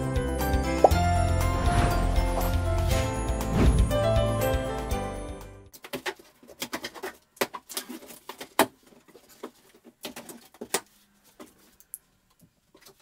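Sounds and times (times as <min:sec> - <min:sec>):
tape and cardboard rustling: 0:05.8 - 0:11.9.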